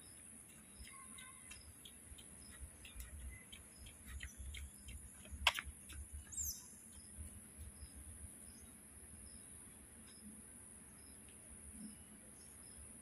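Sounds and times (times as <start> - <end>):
small sharp clicks: 2.8 - 6.0.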